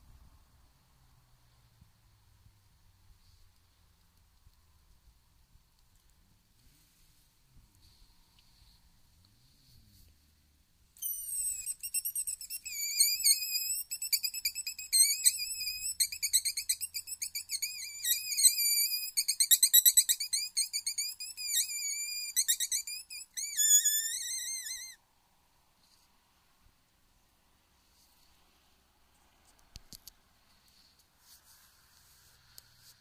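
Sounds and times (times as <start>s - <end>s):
predator call warbling squeals: 11.0s - 25.0s.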